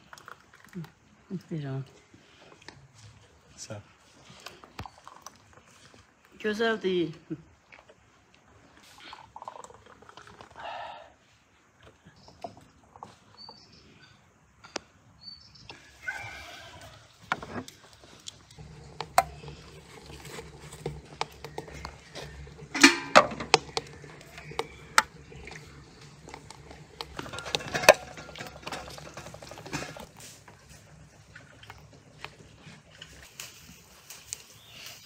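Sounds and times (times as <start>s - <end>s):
glass bottles clinking: 21.7s - 25.4s, 26.1s - 30.1s.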